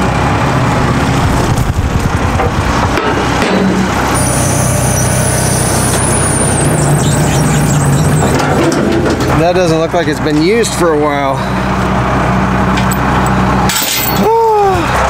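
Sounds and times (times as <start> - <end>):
diesel engine running: 0.0 - 15.0
high thin whine: 4.0 - 8.8.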